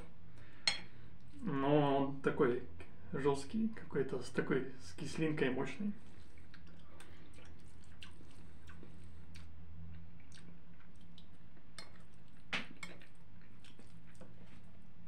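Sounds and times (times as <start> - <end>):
low steady hum: 0.0 - 15.0
person chewing with wet smacks: 6.0 - 14.9.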